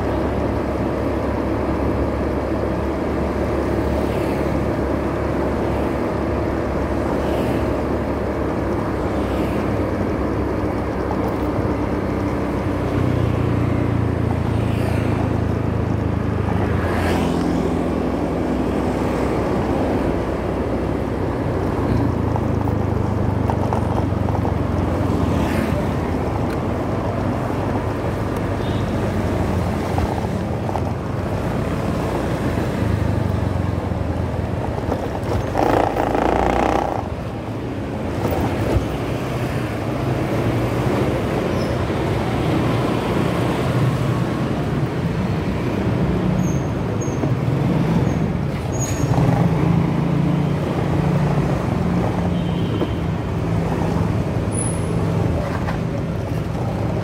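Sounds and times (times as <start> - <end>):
hiss of passing vehicles: 14.4 - 15.5
motorcycle engine rumble: 17.7 - 39.1.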